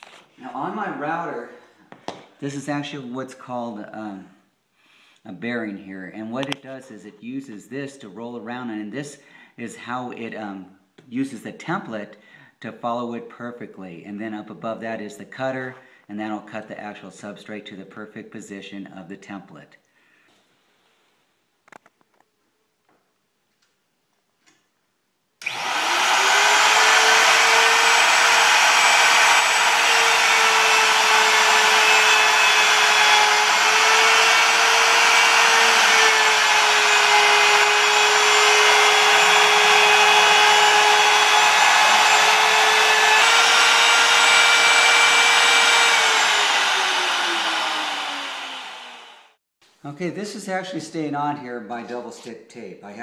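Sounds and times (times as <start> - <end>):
electric router high whine: 25.4 - 49.4.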